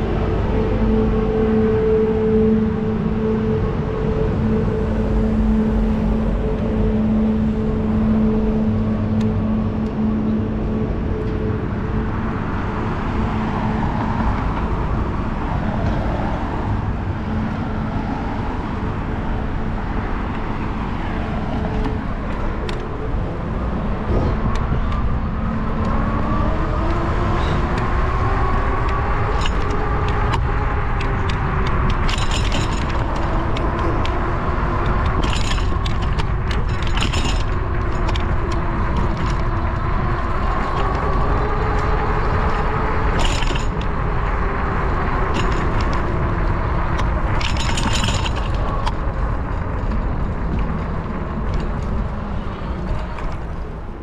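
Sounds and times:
car traffic: 0:00.0 - 0:54.0
wind noise: 0:00.0 - 0:54.0
light rattling clicks: 0:28.5 - 0:44.0, 0:45.3 - 0:52.1.

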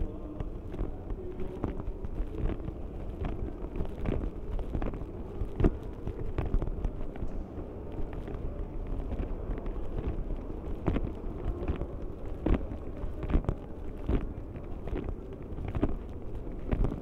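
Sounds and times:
microphone handling noise: 0:00.0 - 0:17.0.

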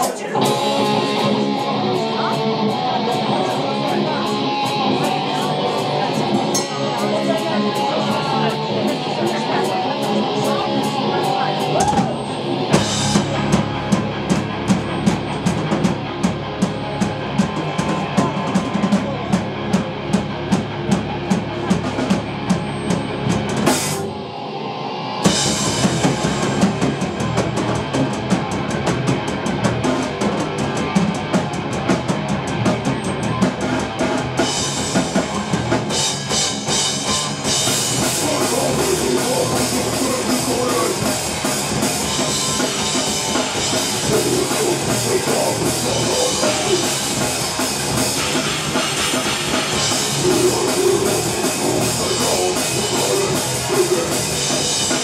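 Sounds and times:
metal band playing: 0:00.0 - 0:55.0.

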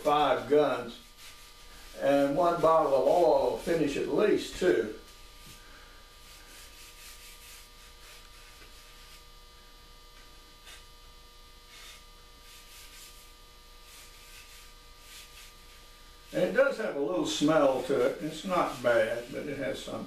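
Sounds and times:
hands rubbing wood: 0:00.0 - 0:04.6, 0:06.3 - 0:09.2
steady electrical hum: 0:00.0 - 0:20.0.

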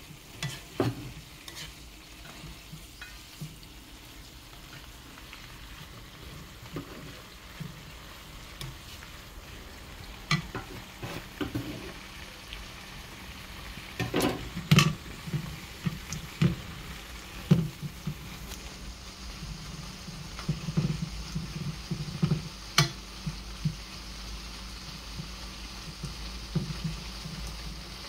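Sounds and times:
peppers sizzling in a frying pan: 0:00.0 - 0:28.0
spoon scraping a pan: 0:00.1 - 0:03.6, 0:05.6 - 0:09.2, 0:10.2 - 0:12.0, 0:14.0 - 0:16.8.

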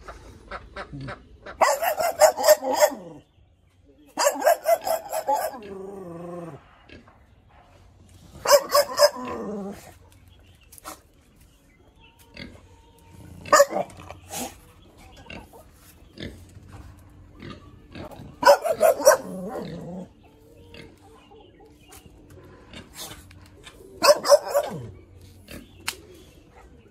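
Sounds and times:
dog barking: 0:01.6 - 0:03.2, 0:04.2 - 0:05.7, 0:08.4 - 0:09.5, 0:13.4 - 0:13.9, 0:18.4 - 0:19.8, 0:24.0 - 0:25.0.

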